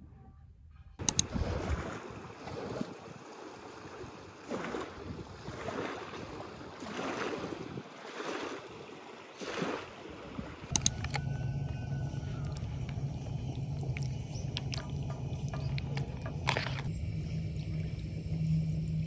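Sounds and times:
sharp clicks: 1.0s - 1.4s, 10.7s - 11.3s
waves washing onto pebbles: 1.2s - 11.2s
steady low hum: 10.0s - 19.0s.

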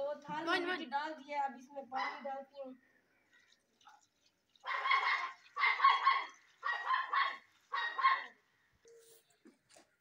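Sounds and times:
dog barking: 4.6s - 8.4s.

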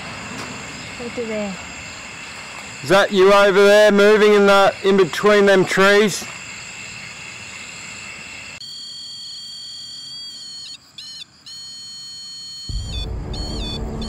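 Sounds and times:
detector alarm warbling tones: 8.6s - 14.0s
low noise: 12.7s - 14.0s.

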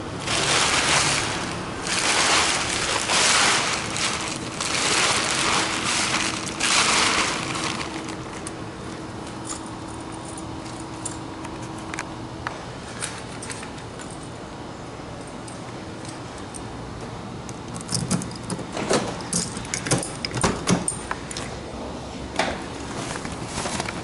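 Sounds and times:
fabric cover rustling: 0.2s - 8.4s.

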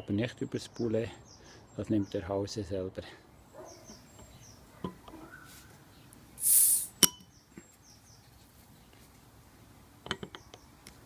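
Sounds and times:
hiss of escaping gas: 6.4s - 7.1s
metallic click of cap: 6.6s - 7.3s
bottle opener knocking on cap: 7.0s - 7.3s.

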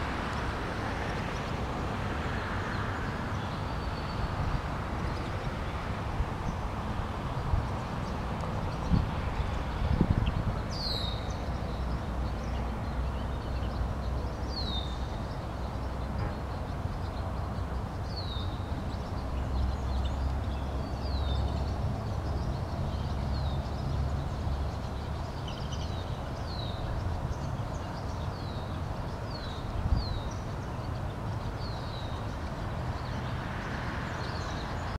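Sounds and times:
bird chirping: 8.0s - 33.3s.

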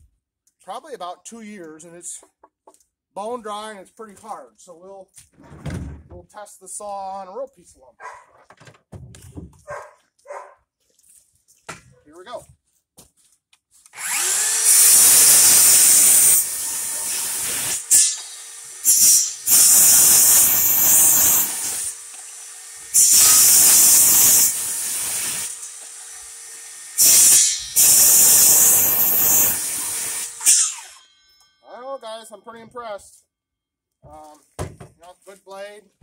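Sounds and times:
saw blade cutting wood: 13.9s - 31.4s
circular saw motor whine: 14.0s - 14.8s.

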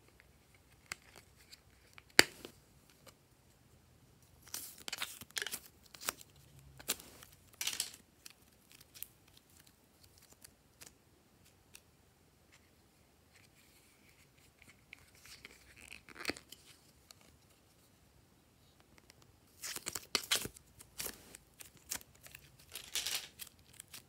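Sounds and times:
clay peeling from plastic molds: 0.0s - 3.2s.

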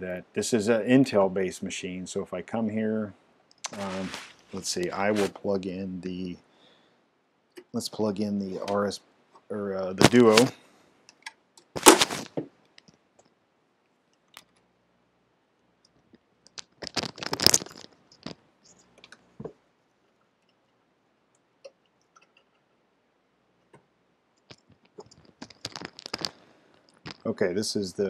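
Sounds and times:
handling rustle: 3.7s - 5.4s, 10.0s - 10.6s, 11.8s - 12.4s, 24.6s - 27.3s
scraping and crackling: 11.8s - 12.4s, 16.4s - 19.5s, 24.4s - 27.4s.

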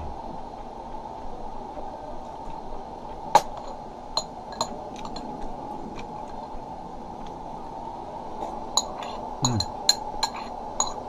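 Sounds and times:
metal spoon clinking on ceramic bowl: 4.2s - 5.3s, 8.8s - 11.0s.

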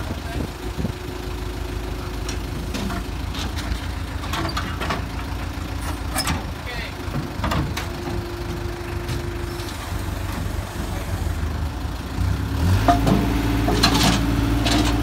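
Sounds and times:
truck engine humming: 0.0s - 15.0s
metal clanks: 12.8s - 15.0s.

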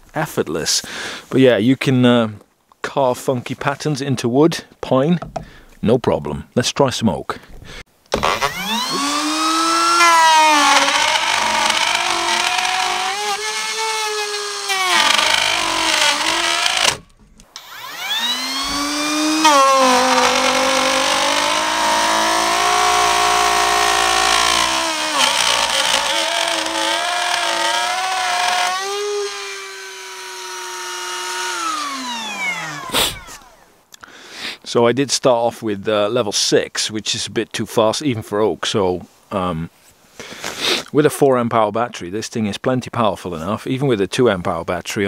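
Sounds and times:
router whining cutting wood: 8.1s - 33.7s.

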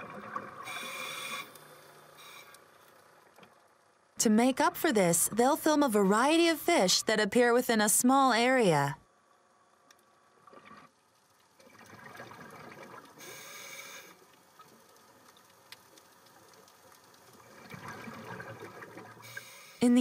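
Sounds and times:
underwater bubbling from breath: 11.6s - 14.3s, 17.4s - 19.7s.

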